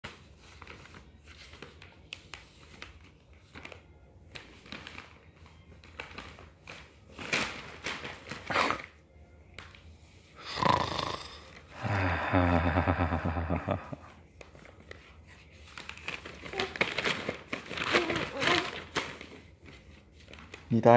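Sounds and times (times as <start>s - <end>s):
newspaper rustling and crinkling: 0.1s - 8.9s, 14.2s - 20.9s.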